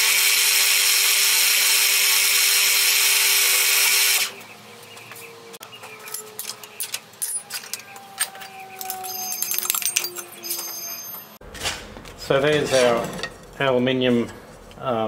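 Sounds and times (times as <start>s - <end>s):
drill press drilling metal: 0.0s - 4.3s.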